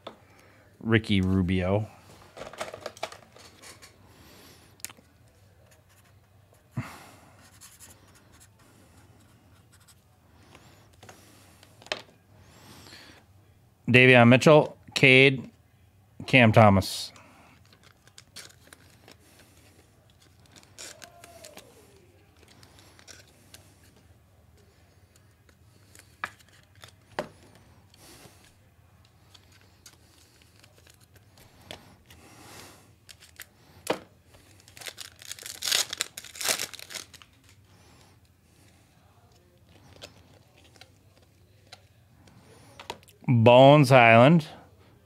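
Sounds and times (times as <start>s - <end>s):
card pack wrappers tearing: 17.6s - 23.9s, 25.7s - 27.1s, 29.2s - 31.9s, 33.0s - 37.6s.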